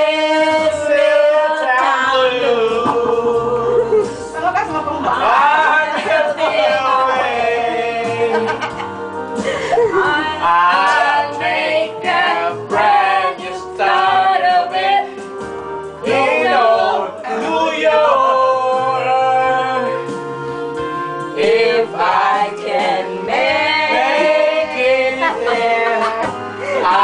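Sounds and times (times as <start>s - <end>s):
men and women singing together: 0.0s - 8.8s, 9.4s - 15.2s, 16.0s - 20.2s, 21.3s - 27.0s
karaoke backing track: 0.0s - 27.0s.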